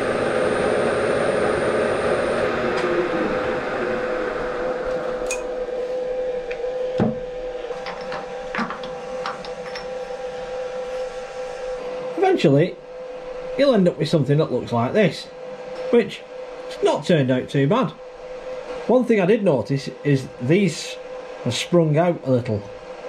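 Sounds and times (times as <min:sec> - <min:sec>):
spindle motor humming: 0:00.0 - 0:23.0
milling machine cutting metal: 0:04.7 - 0:23.0.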